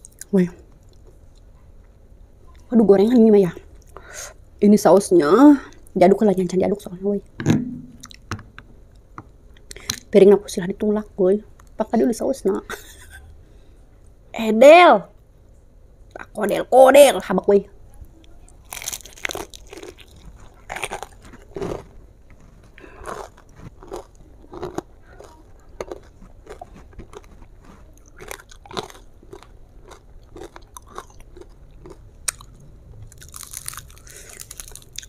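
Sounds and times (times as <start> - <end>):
chewing with crunches: 18.4 - 35.0
biting crispy fried chicken: 18.5 - 21.8, 22.8 - 35.0.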